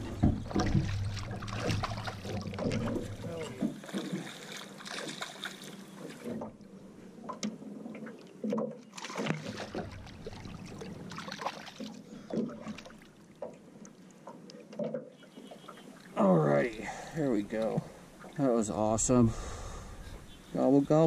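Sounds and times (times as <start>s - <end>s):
fish splashing in water: 0.0s - 6.4s, 8.9s - 13.5s.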